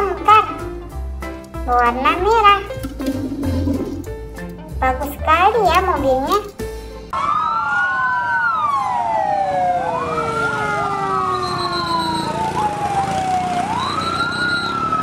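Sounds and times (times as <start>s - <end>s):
sirens wailing: 7.1s - 15.0s.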